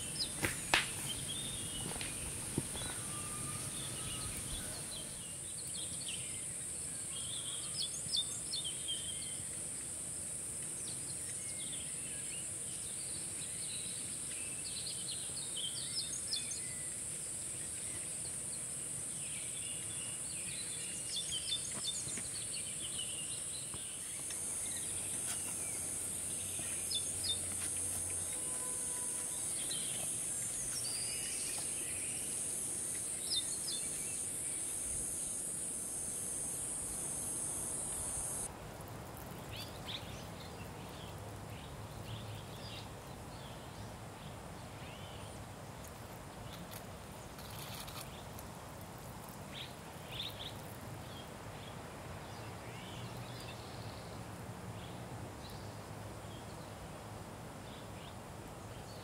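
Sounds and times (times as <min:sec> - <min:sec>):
high-pitched insect drone: 0:02.7 - 0:05.2, 0:27.3 - 0:38.5.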